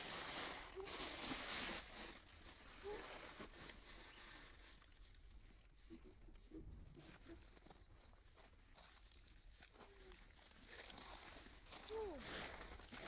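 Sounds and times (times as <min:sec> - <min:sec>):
dry leaves rustling: 0:00.0 - 0:05.8.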